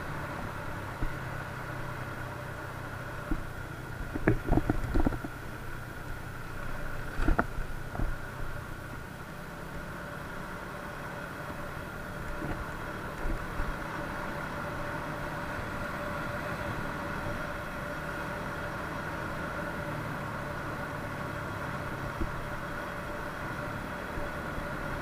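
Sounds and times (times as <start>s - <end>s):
moped engine cruising: 0.0s - 25.0s
road noise: 0.0s - 25.0s.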